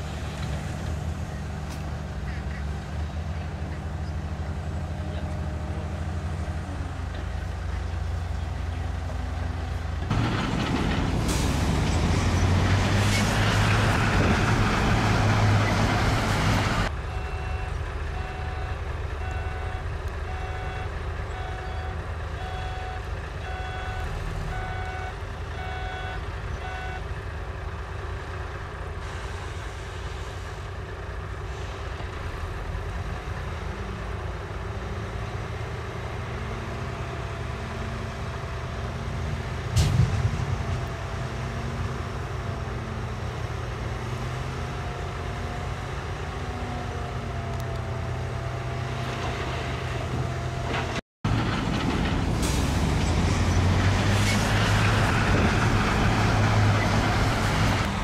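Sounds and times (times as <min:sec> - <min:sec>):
diesel machine engines: 0:00.0 - 0:58.0
reversing alarm beeping: 0:17.0 - 0:27.0.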